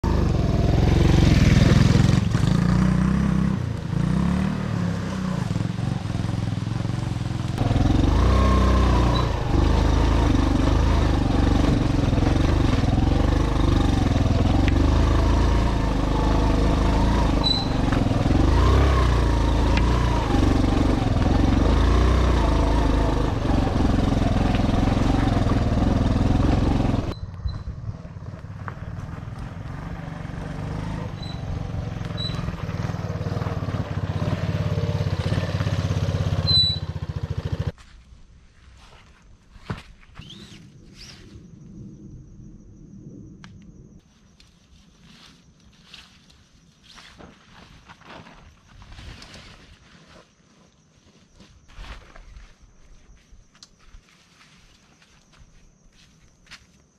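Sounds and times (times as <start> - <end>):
motorcycle engine revving: 0.0 - 37.8.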